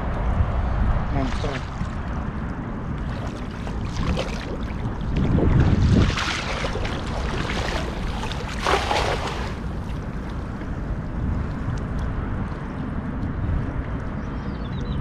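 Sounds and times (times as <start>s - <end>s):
water: 0.0s - 15.0s
wind rumbling on microphone: 0.0s - 15.0s.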